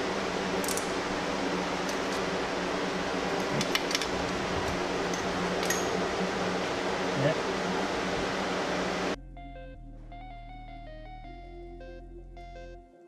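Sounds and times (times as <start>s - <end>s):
steady machine hum: 0.0s - 12.5s
wrench clinking on bolts: 5.1s - 5.9s.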